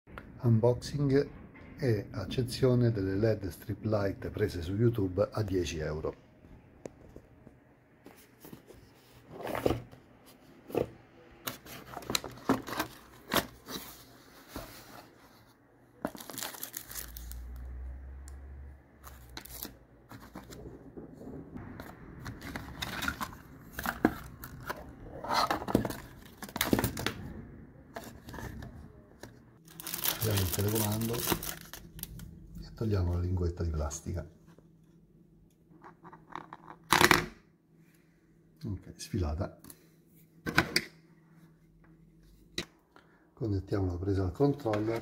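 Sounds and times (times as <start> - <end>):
plastic bags crinkling: 16.1 - 17.6, 29.6 - 32.2.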